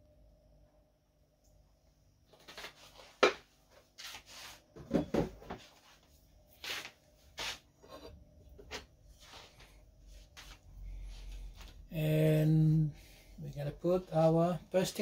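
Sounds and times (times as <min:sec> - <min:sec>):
rustling and scraping: 0:02.3 - 0:11.8.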